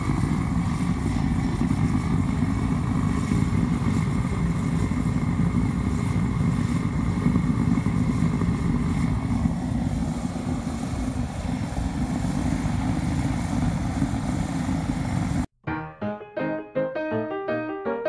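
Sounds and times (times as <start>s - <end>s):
jet heater fan and burner rushing: 0.0s - 15.5s
piano music: 15.6s - 18.0s.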